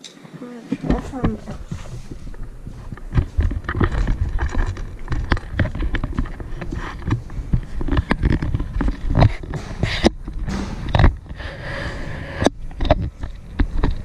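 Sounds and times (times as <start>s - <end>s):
footsteps on wooden floor: 0.4s - 11.5s
handheld camera rubbing and bumping: 0.7s - 14.0s.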